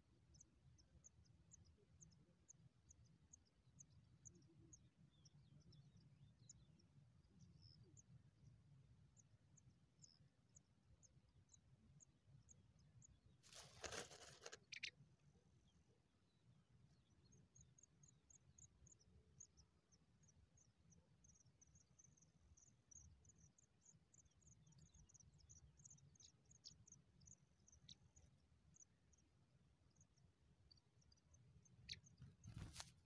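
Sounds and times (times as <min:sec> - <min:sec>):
dry grass rustling: 0:13.4 - 0:14.8, 0:32.5 - 0:33.0.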